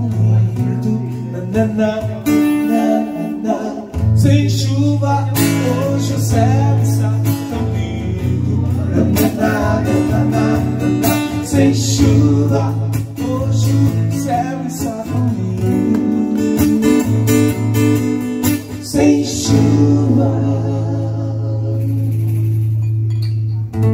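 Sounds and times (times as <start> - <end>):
man singing: 0.0 - 22.8
acoustic guitar strumming: 0.0 - 23.9.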